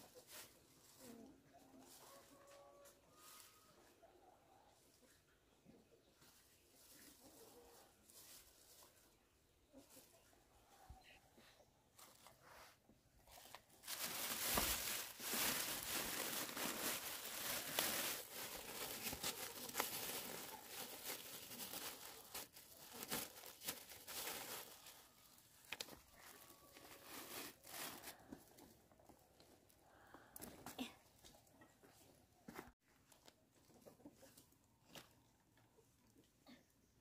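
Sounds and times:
dry material rustling and crinkling: 6.8s - 9.2s, 12.0s - 29.4s.

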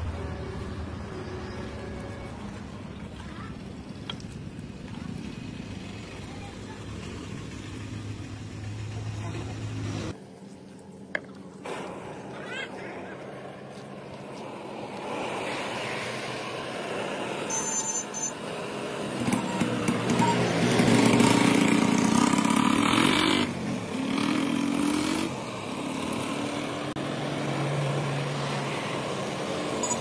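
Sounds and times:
low engine hum: 0.0s - 17.5s
vehicle passing by: 11.7s - 17.5s, 18.4s - 30.0s.

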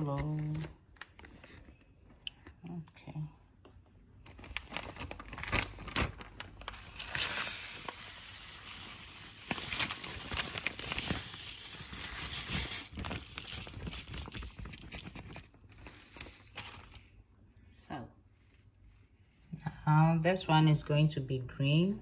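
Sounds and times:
plastic bag crinkling: 4.2s - 17.1s.

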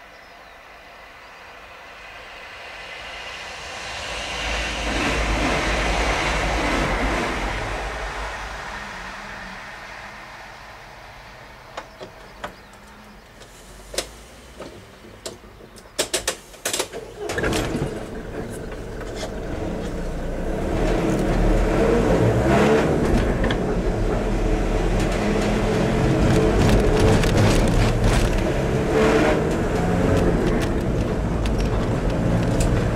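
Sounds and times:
road noise: 0.0s - 32.9s
car engine accelerating: 17.7s - 32.9s.

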